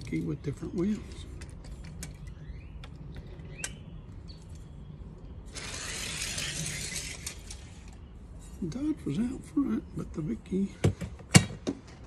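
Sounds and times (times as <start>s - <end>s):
toy cars rattling down plastic track: 5.5s - 7.8s.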